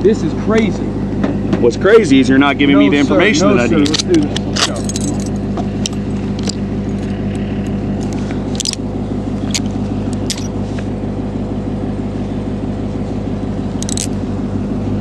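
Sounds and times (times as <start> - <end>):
vehicle engine idling: 0.0 - 15.0
metallic clicks and jingles: 3.9 - 6.6, 13.8 - 14.1.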